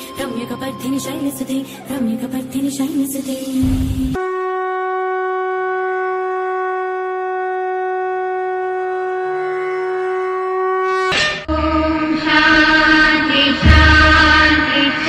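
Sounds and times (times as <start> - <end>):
conch shell blown: 4.1 - 11.6
music with chanting: 11.5 - 15.0.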